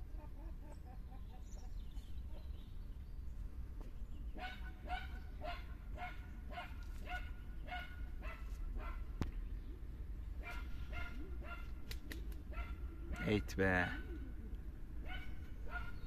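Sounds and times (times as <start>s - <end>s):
dog barking: 4.4s - 9.0s, 10.4s - 11.7s, 12.5s - 13.4s, 15.0s - 16.0s.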